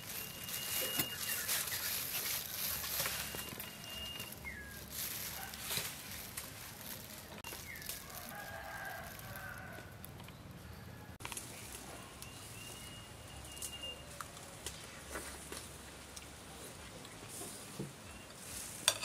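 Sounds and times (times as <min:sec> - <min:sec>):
whistled bird calls: 0:00.0 - 0:02.3, 0:03.0 - 0:04.8, 0:11.9 - 0:14.1
chickens clucking: 0:00.1 - 0:06.2
rooster crowing: 0:08.0 - 0:10.0.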